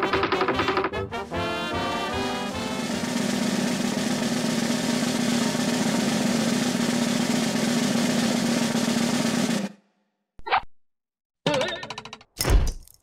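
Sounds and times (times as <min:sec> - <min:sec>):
snare drum roll: 0:01.3 - 0:09.8.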